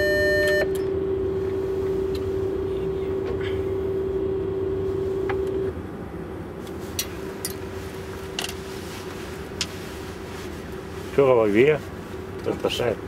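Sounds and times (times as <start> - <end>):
held tone: 0.0 - 5.7
steady electrical hum: 0.0 - 13.0.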